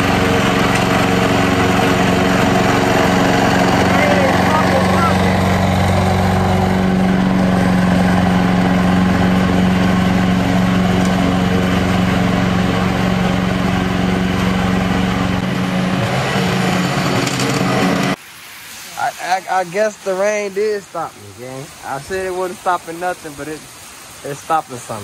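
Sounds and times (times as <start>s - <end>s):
lawn mower engine running: 0.0s - 18.2s.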